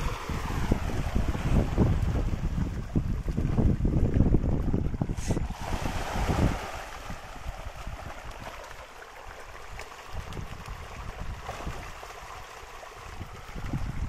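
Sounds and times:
fish splashing at water surface: 0:04.9 - 0:13.9.

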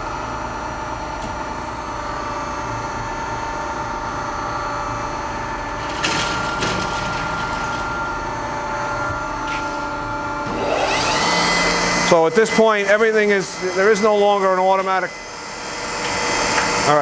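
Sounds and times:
grinder machine hum and whine: 0:00.0 - 0:17.0.

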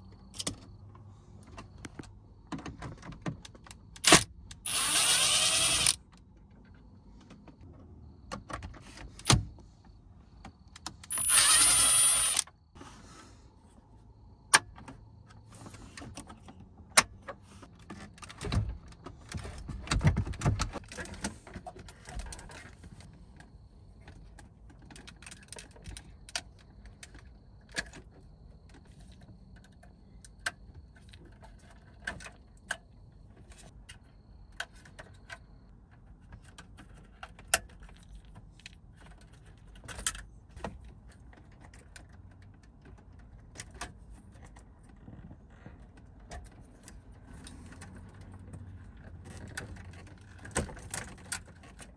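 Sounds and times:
cordless driver whirring: 0:04.1 - 0:06.0, 0:11.1 - 0:12.5.

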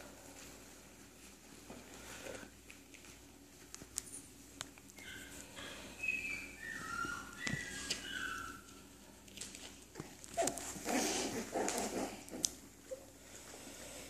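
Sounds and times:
puppies scuffling: 0:00.0 - 0:13.6
high-pitched dog whines: 0:05.0 - 0:08.7.

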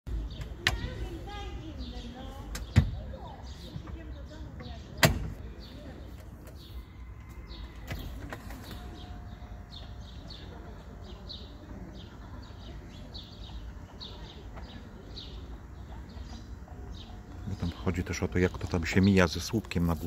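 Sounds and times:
birds chirping: 0:00.1 - 0:20.0
electric seat mechanism humming: 0:05.2 - 0:20.0.

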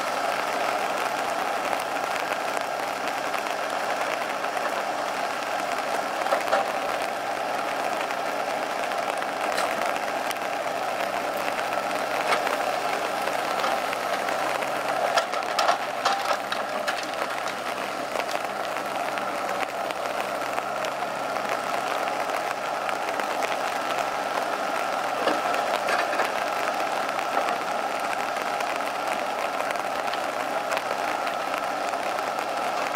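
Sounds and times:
diesel engine running: 0:00.0 - 0:32.9
hydraulic crane working: 0:00.0 - 0:32.9
knocks of logs being handled: 0:13.5 - 0:18.5.

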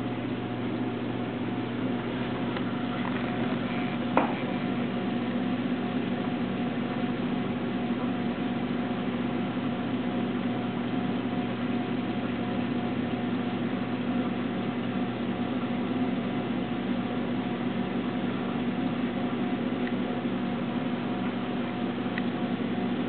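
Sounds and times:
aquarium pumps humming: 0:00.0 - 0:23.0.

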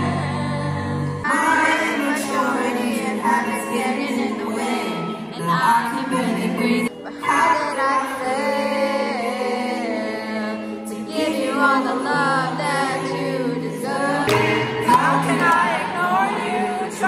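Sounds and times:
person singing: 0:00.0 - 0:17.0
instrumental chords: 0:14.3 - 0:17.0.

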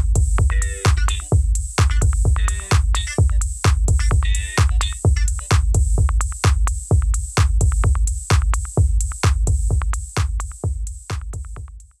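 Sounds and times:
drum machine beat: 0:00.0 - 0:12.0
electronic background music: 0:00.4 - 0:05.6.

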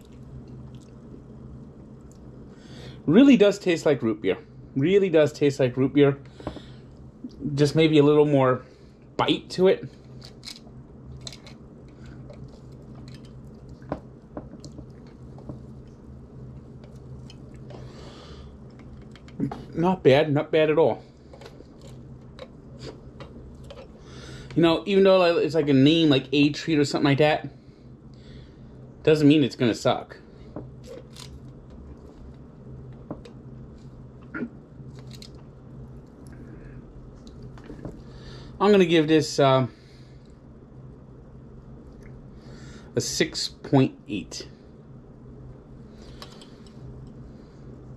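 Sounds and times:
low steady hum: 0:00.0 - 0:47.9
person swallowing: 0:34.2 - 0:34.6.

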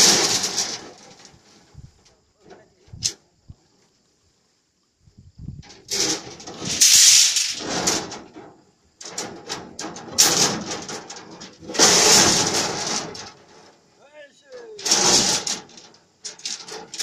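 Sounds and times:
steel bars scraping and clattering: 0:00.0 - 0:01.6, 0:05.6 - 0:13.9, 0:14.5 - 0:17.0.

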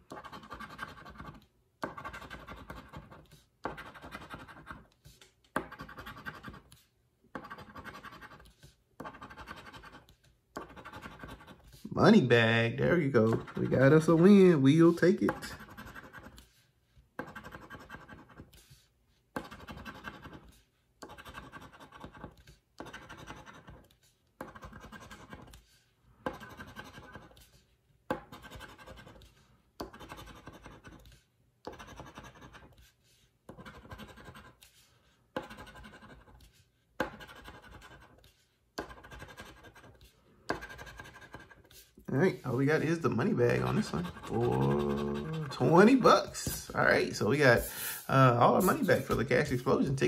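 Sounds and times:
scratching lottery ticket coating: 0:37.2 - 0:46.7.

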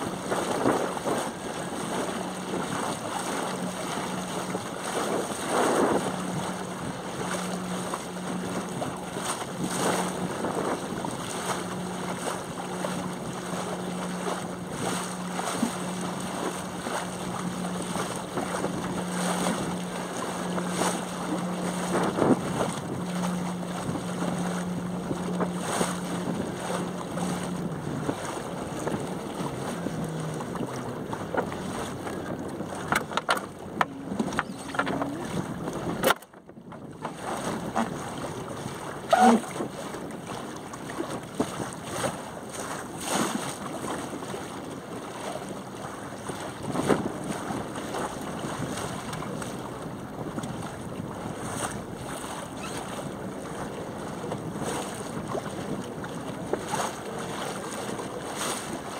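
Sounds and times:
water noise from sailing dinghy: 0:00.0 - 0:58.9
wind buffeting microphone: 0:00.0 - 0:58.9
sharp knocks and clicks: 0:32.9 - 0:35.1.

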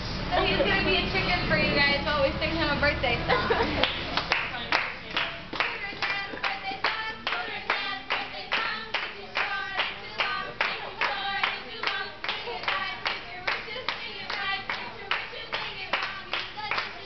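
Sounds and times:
people clapping along: 0:03.8 - 0:17.0
women singing together: 0:05.6 - 0:17.0.

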